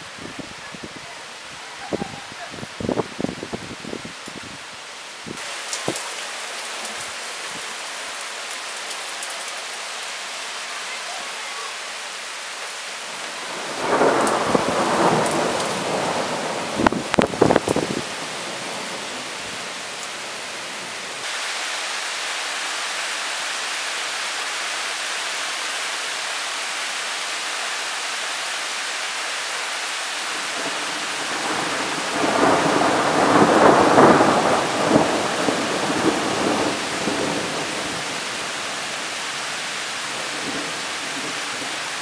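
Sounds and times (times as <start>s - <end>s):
steady rain hissing: 0.0s - 42.0s
rolling thunder rumble: 13.5s - 18.9s, 30.6s - 38.2s.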